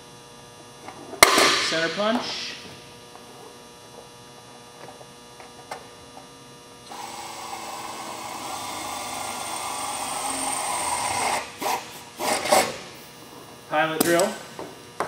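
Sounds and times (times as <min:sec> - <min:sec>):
air drill whining through metal: 0:06.8 - 0:13.1.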